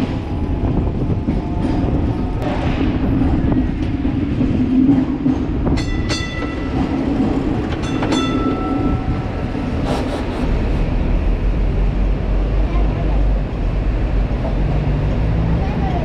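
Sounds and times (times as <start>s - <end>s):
tram rumbling on track: 0.0s - 16.0s
tram gong ringing: 7.8s - 9.7s.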